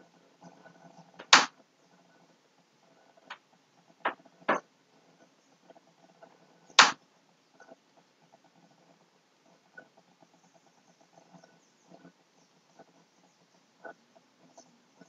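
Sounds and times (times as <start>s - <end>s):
short sharp noises: 1.2s - 1.5s.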